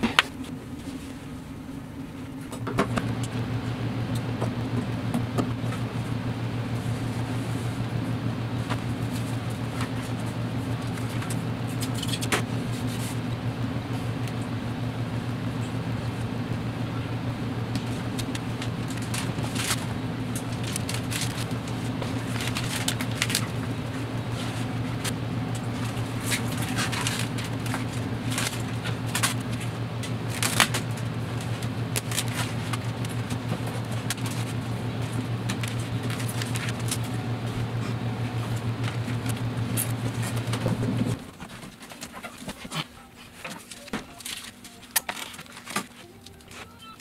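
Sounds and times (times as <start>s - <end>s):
motor humming: 0.0s - 41.4s
fabric and plastic film crinkling: 17.8s - 39.3s, 41.1s - 47.0s.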